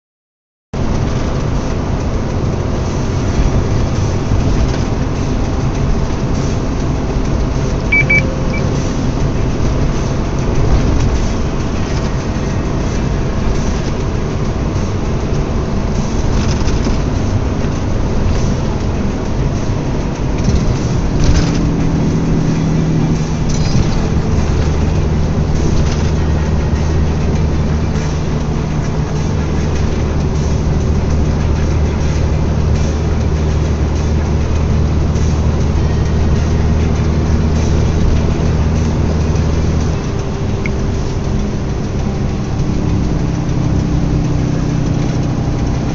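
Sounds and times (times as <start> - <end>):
car engine and road noise: 0.8 - 45.9
low steady hum: 3.0 - 11.2
high double beep: 7.9 - 8.8.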